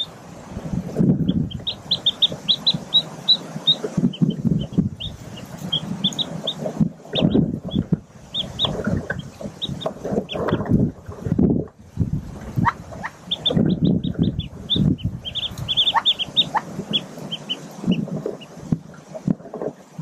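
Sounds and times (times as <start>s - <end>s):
ducklings peeping: 0.0s - 0.2s, 0.8s - 11.4s, 12.4s - 19.8s.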